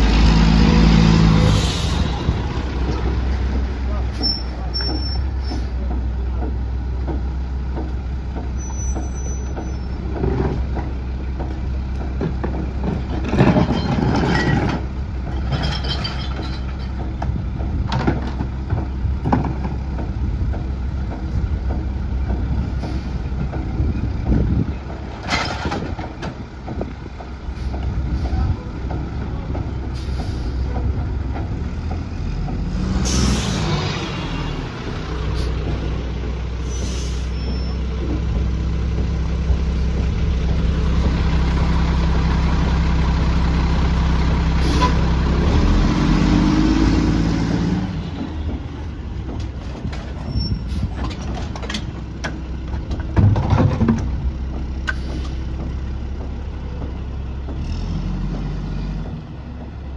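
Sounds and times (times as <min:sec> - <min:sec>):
diesel engine revving: 0:00.0 - 0:15.3, 0:17.0 - 0:59.9
air brakes hissing: 0:01.4 - 0:02.3, 0:29.9 - 0:30.8, 0:33.0 - 0:33.8, 0:35.2 - 0:35.8, 0:36.6 - 0:38.0, 0:44.6 - 0:45.0, 0:50.2 - 0:51.0, 0:54.9 - 0:55.6.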